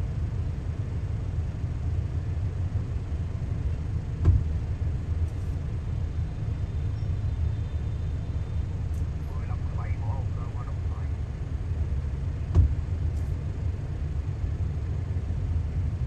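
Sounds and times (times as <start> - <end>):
car rumble inside cabin: 0.0 - 16.0
short thump: 4.2 - 4.5, 12.5 - 12.8.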